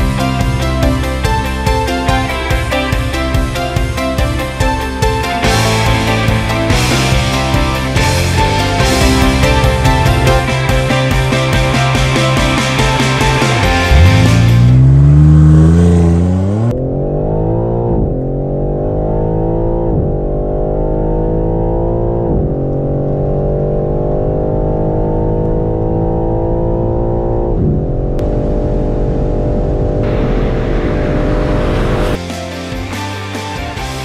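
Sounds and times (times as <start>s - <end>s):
car engine accelerating: 0.0s - 32.2s
rushing wind noise: 27.6s - 32.2s.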